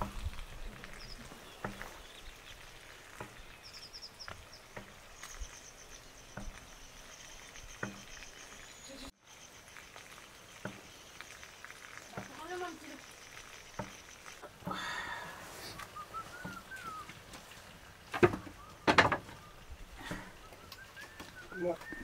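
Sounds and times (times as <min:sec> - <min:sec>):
insect buzz: 0:00.0 - 0:16.9.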